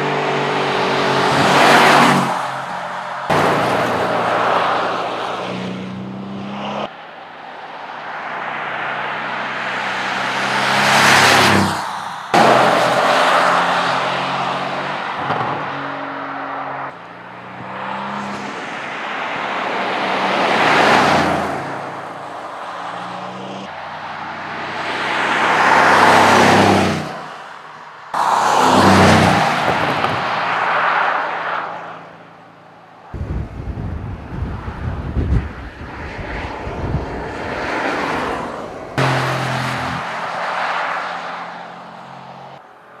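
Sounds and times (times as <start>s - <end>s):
car driving by: 28.2s - 32.1s, 37.6s - 42.4s.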